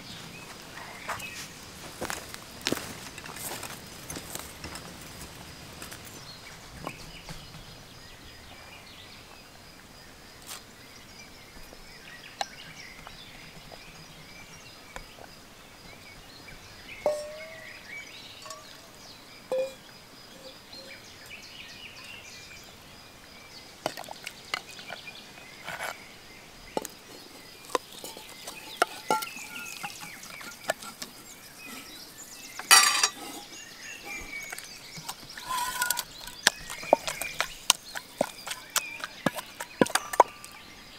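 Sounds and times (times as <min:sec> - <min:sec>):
birds chirping: 0:00.0 - 0:40.9
food clattering into steel bowl: 0:17.1 - 0:17.8, 0:27.8 - 0:31.0, 0:32.6 - 0:33.5
ladle scraping steel bowls: 0:17.1 - 0:17.8, 0:18.4 - 0:18.8, 0:26.8 - 0:40.7.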